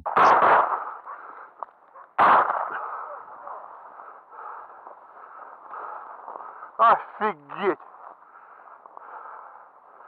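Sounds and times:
shotgun shot echoing: 0:00.0 - 0:01.0, 0:02.2 - 0:03.0.

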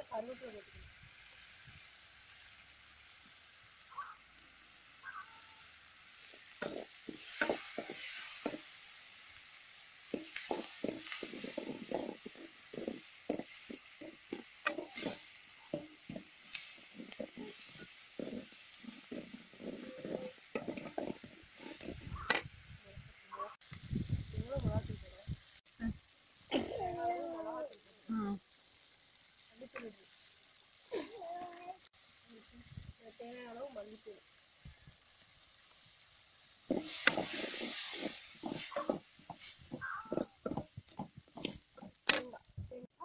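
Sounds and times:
onions frying in oil: 0:00.0 - 0:43.0
steel spoon scraping pan: 0:06.4 - 0:08.8, 0:10.1 - 0:22.5, 0:36.7 - 0:42.4.

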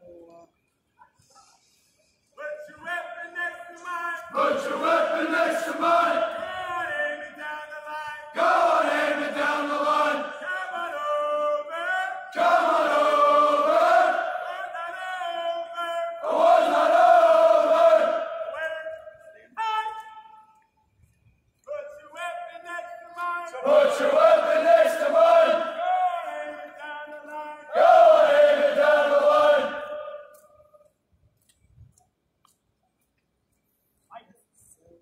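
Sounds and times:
group chanting marching cadence: 0:02.5 - 0:07.4, 0:08.0 - 0:15.2, 0:16.0 - 0:20.4, 0:23.4 - 0:30.8.

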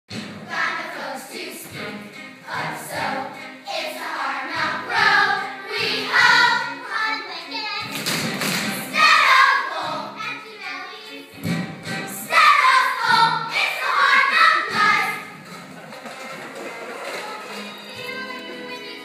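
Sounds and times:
steady musical accompaniment: 0:00.1 - 0:19.0
group of voices singing: 0:00.5 - 0:06.7.

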